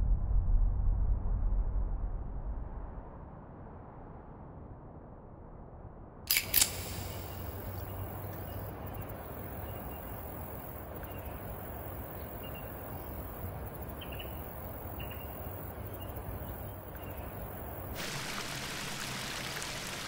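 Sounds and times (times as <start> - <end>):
low rumbling background noise: 0.0 - 20.0
faint bird chirps: 7.1 - 17.8.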